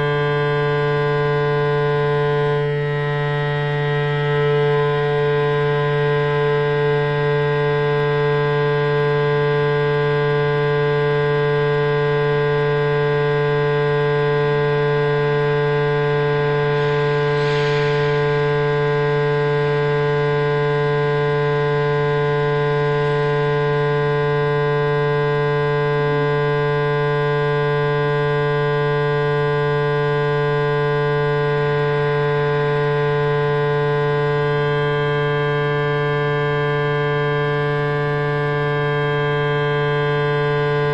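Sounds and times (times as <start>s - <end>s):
strong low hum: 0.0s - 8.2s, 13.9s - 25.4s
drone of held tones: 0.0s - 40.9s.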